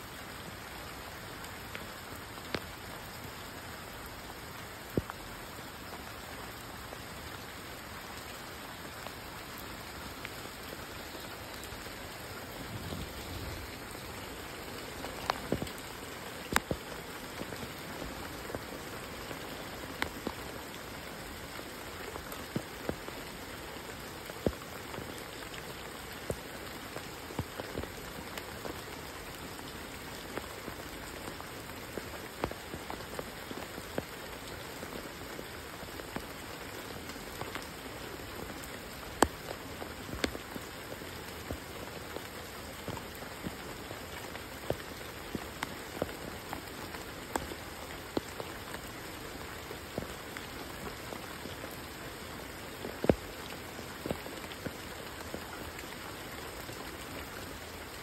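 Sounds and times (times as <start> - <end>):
steady rain hiss: 0.0 - 58.0.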